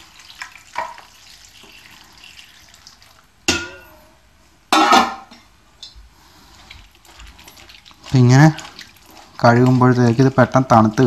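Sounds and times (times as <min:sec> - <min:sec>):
water trickling through strainer: 0:00.0 - 0:04.0, 0:06.2 - 0:11.0
metal pot clanking: 0:03.5 - 0:04.1, 0:04.7 - 0:05.4.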